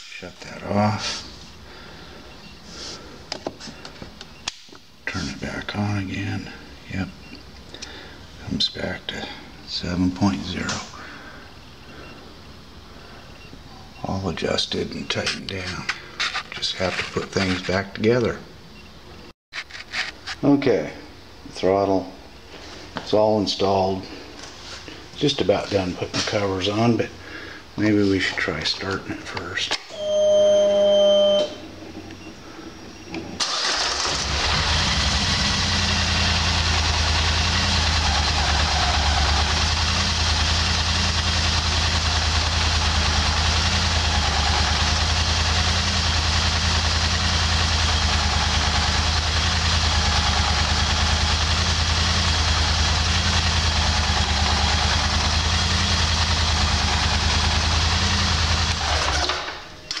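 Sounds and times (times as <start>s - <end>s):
engine starting and idling: 33.4s - 60.0s.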